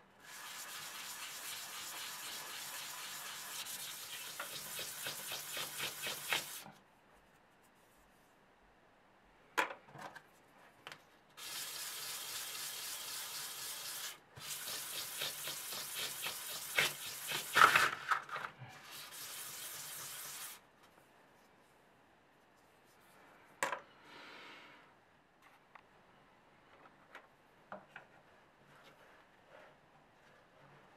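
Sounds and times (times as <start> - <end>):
wood rubbing on sandpaper: 0.2 - 6.6, 11.4 - 17.7, 18.8 - 20.6.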